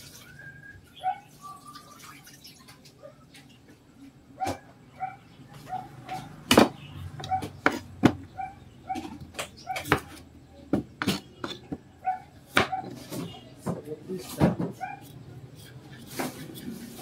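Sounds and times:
knife cutting on cutting board: 11.0 - 11.7.

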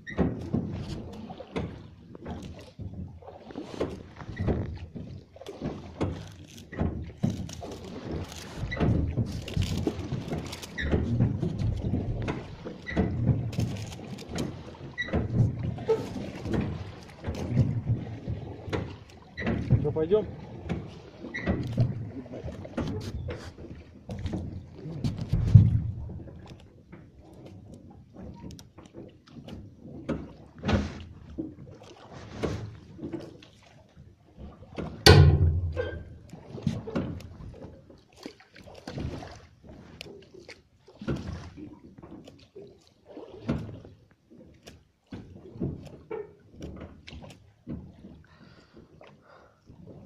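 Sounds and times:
oar strokes through water: 0.0 - 50.0
sharp knock: 35.1 - 36.0.

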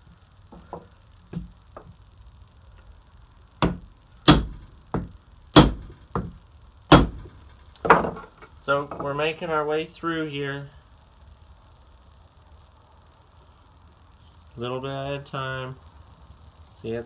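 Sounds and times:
hammer knocking on wooden punch: 3.6 - 7.3.

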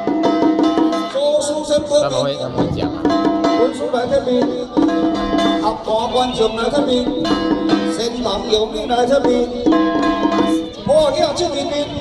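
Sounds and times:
plucked string melody: 2.9 - 11.8.

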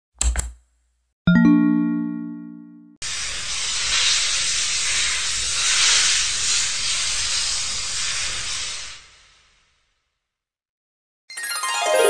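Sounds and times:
loud steady hiss: 3.0 - 9.5.

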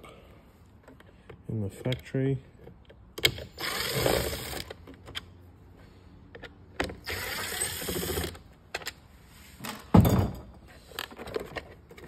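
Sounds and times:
cordless drill whirring: 3.5 - 4.7, 7.0 - 8.4.

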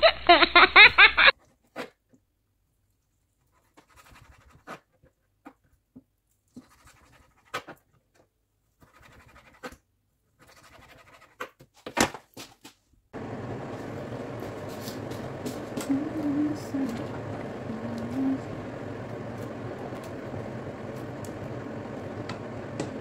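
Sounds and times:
steady rushing noise: 13.2 - 23.0.

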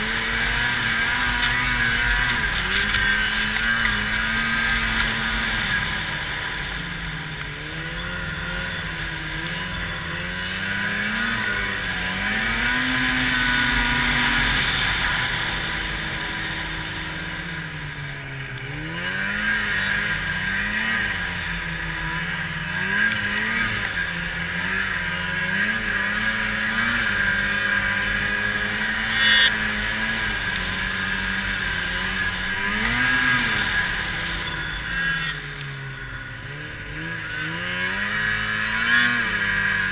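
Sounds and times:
snowmobile engine revving: 0.0 - 39.9
hiss of track on snow: 13.7 - 17.6.

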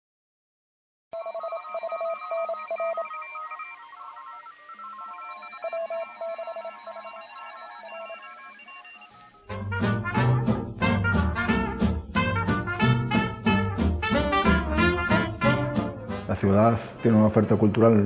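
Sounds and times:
electronic beeping tones: 1.2 - 9.5.

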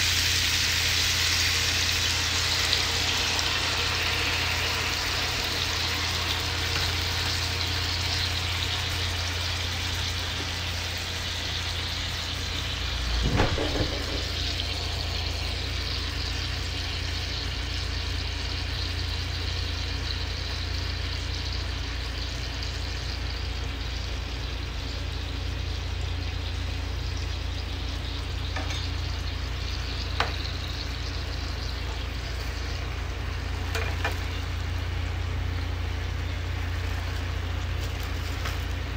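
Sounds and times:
fish sizzling in a pan: 0.0 - 38.9
low even hum: 0.0 - 38.9
knock: 13.2 - 14.4.

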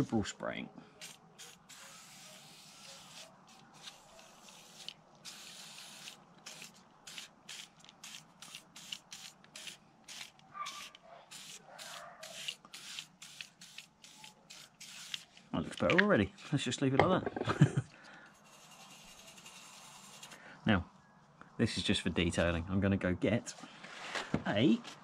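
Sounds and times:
aerosol can spraying: 1.0 - 15.2.

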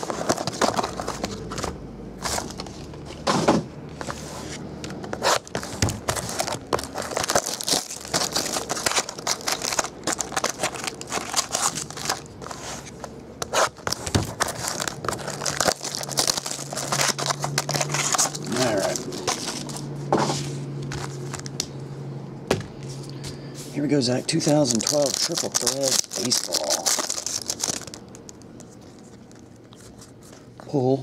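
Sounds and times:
plastic wrap tearing and crinkling: 0.0 - 1.5, 5.2 - 19.9, 24.3 - 28.5.

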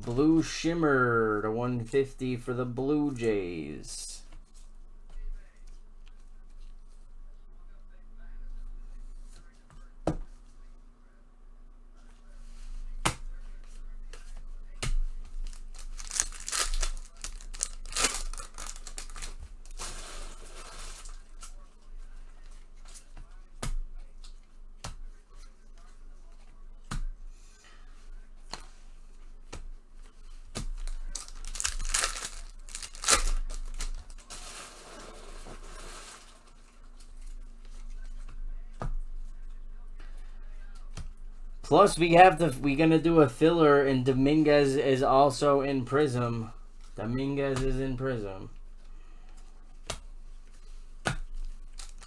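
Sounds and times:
wrappers tearing and crinkling: 15.4 - 21.4, 30.8 - 36.6, 51.6 - 52.0.

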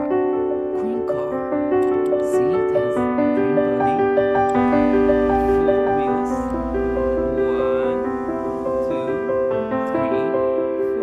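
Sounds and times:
gentle keyboard melody: 0.0 - 11.0.

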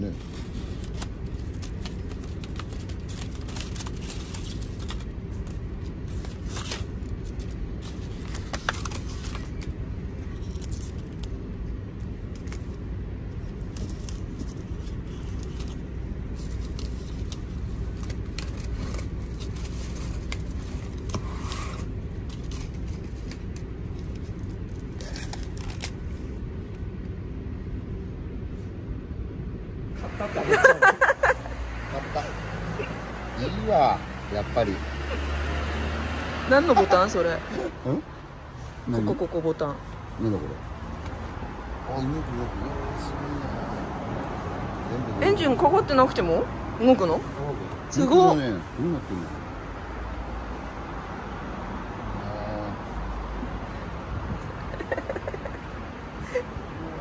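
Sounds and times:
paper and ribbon rustling: 0.0 - 11.3, 13.4 - 26.4
steady low hum: 0.0 - 34.6.

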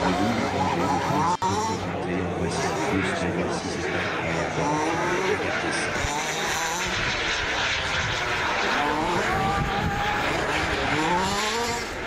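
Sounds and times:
model jet engine whining: 0.0 - 12.0.

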